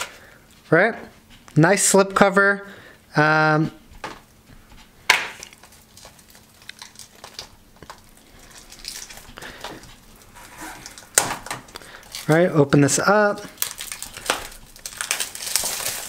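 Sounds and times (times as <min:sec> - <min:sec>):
plastic case rustling and scraping: 0:07.2 - 0:11.7.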